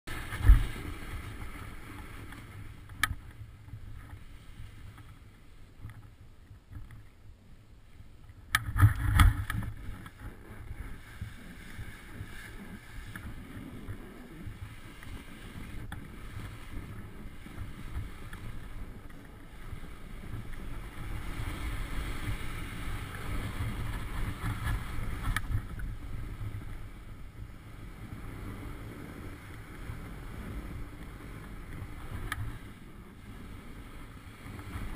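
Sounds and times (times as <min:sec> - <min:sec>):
wind buffeting microphone: 0:08.2 - 0:34.9.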